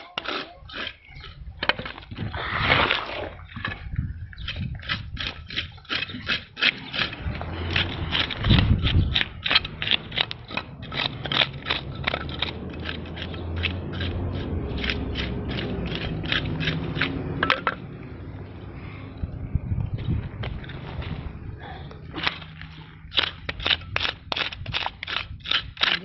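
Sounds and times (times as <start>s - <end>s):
scaling tool rasping fish scales: 0.0s - 2.0s, 4.4s - 17.4s, 22.2s - 26.0s
low hum: 6.6s - 25.4s.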